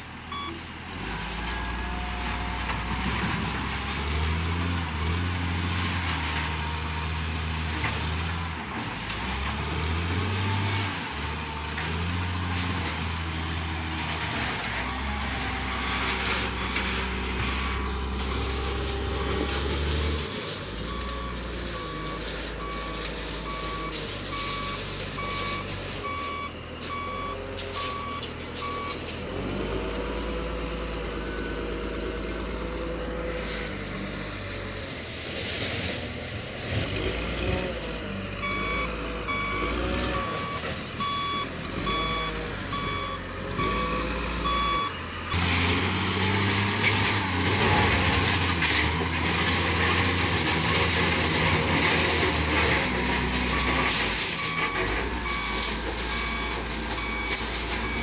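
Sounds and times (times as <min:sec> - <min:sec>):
diesel engine: 0:00.0 - 0:58.0
backup alarm beeping: 0:00.3 - 0:00.6, 0:38.4 - 0:44.9
grinding of broken concrete: 0:01.3 - 0:26.1, 0:45.3 - 0:58.0.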